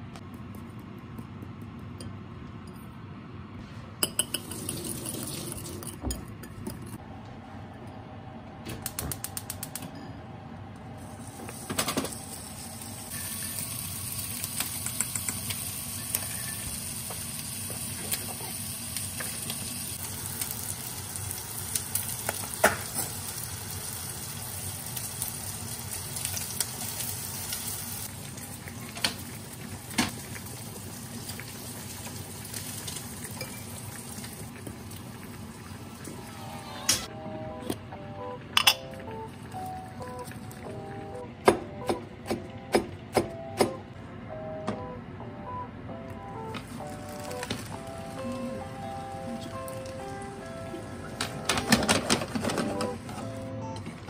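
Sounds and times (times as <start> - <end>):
pot of water heating hiss: 11.0 - 36.6.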